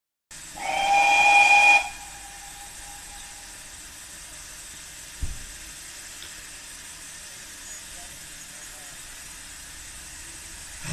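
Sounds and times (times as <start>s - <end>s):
steady low hiss: 0.3s - 10.9s
steam locomotive whistle blast: 0.5s - 3.6s
dull low thump: 5.2s - 5.6s.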